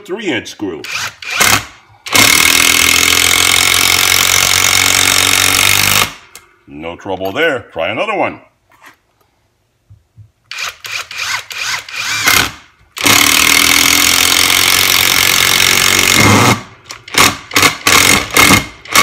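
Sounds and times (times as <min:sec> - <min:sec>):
impact driver hammering: 0:12.2 - 0:19.0.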